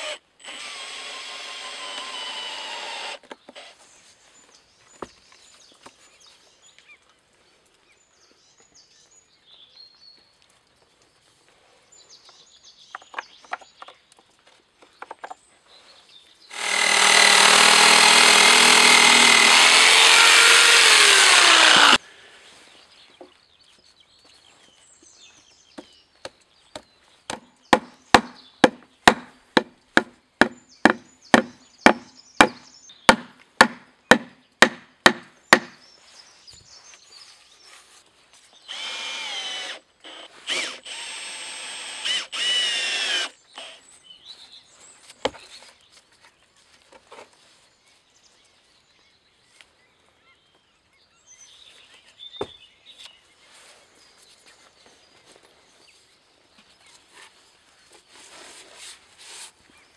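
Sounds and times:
chainsaw cutting log: 0:00.0 - 0:03.7, 0:16.5 - 0:22.0, 0:27.7 - 0:35.8, 0:38.7 - 0:43.8.

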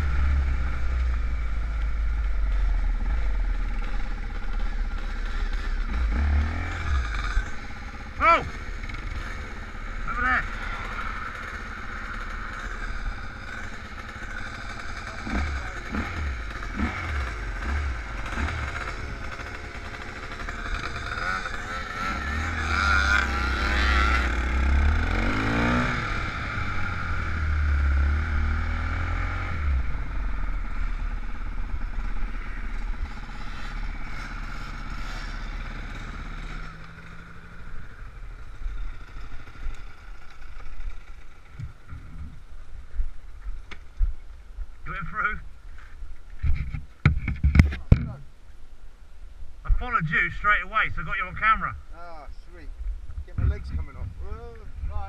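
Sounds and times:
motorcycle engines revving: 0:00.0 - 0:44.0, 0:49.7 - 0:55.0.

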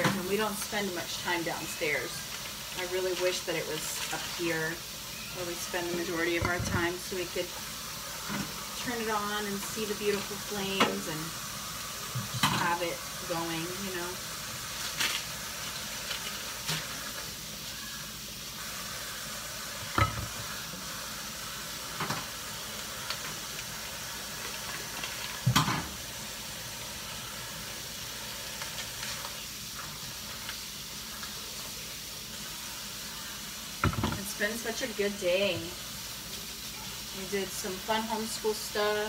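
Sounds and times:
vegetables frying in oil: 0:00.0 - 0:39.0
tap water running into sink: 0:05.1 - 0:17.4, 0:18.6 - 0:26.4, 0:33.4 - 0:34.9
dishes knocking in sink: 0:19.9 - 0:20.4, 0:33.8 - 0:34.2.

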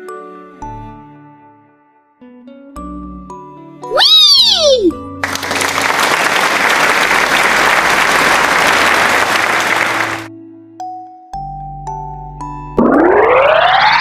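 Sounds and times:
children's background music: 0:00.0 - 0:05.6
crowd applause: 0:05.2 - 0:10.3.

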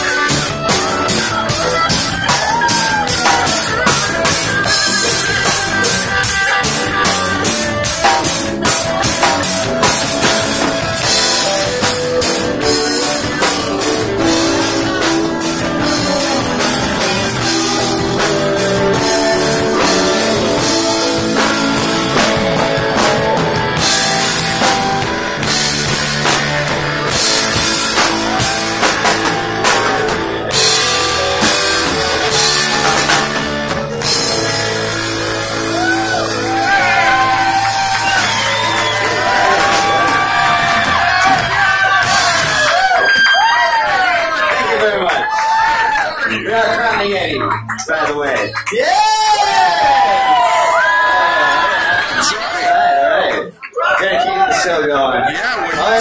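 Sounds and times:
drum kit with cymbals: 0:00.0 - 0:43.6
electric guitar: 0:00.0 - 0:52.6
keyboard: 0:00.0 - 0:56.0.

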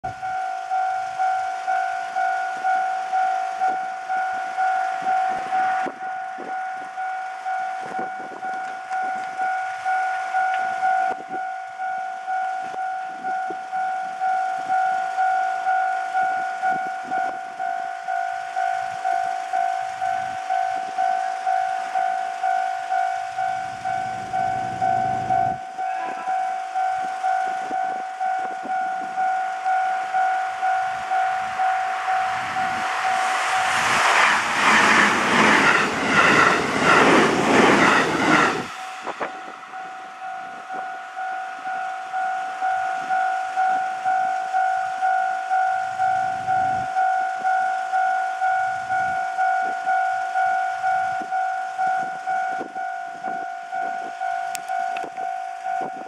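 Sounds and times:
level crossing warning bell: 0:00.0 - 0:56.0
low rumble: 0:27.8 - 0:43.0.

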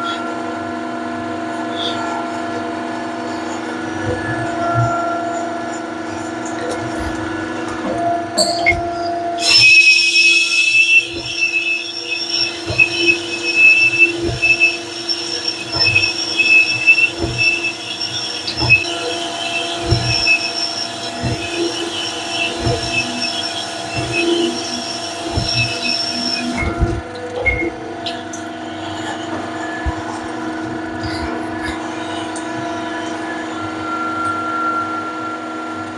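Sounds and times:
high squeal of hone: 0:08.9 - 0:29.8
motor humming: 0:09.4 - 0:33.3.

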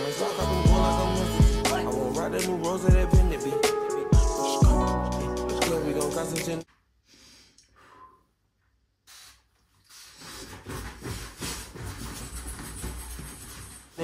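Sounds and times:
spray bottle spritzing: 0:09.0 - 0:10.4.

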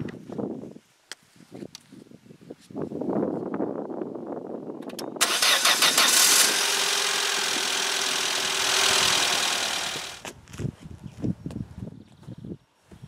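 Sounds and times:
car starter motor cranking: 0:04.9 - 0:10.3
car engine idling: 0:05.2 - 0:10.3.

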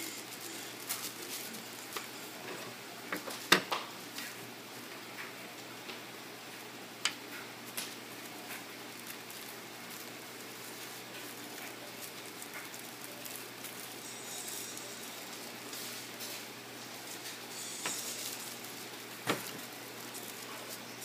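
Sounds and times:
tissue paper rustling: 0:00.0 - 0:02.4, 0:07.9 - 0:21.0.

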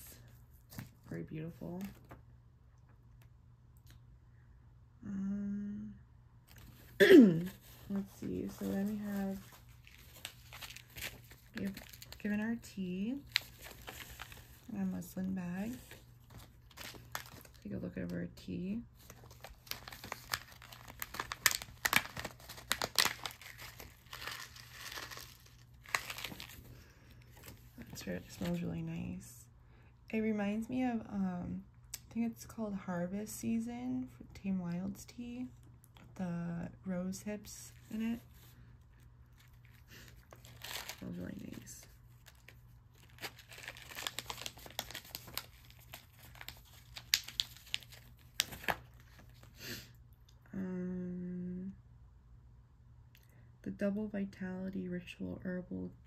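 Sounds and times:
paper pouch crinkling: 0:06.5 - 0:17.8, 0:18.9 - 0:28.6, 0:39.3 - 0:49.6
pouch rustling with crackles: 0:19.2 - 0:26.6.

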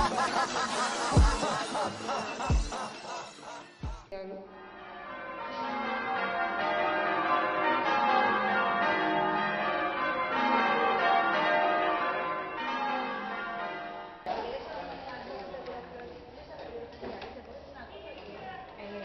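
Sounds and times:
ringing bell-like music: 0:00.0 - 0:14.3.

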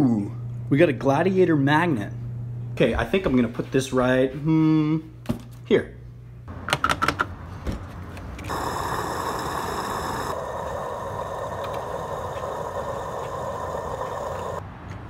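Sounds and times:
steady mechanical running: 0:08.4 - 0:14.6.

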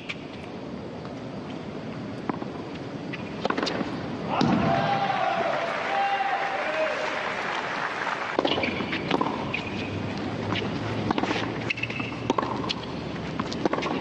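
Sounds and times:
stadium background noise: 0:00.0 - 0:14.0.

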